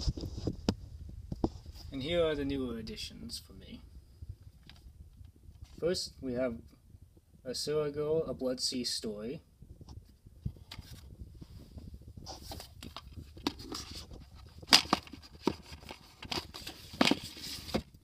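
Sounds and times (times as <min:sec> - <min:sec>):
handling rustling: 0:09.8 - 0:18.0.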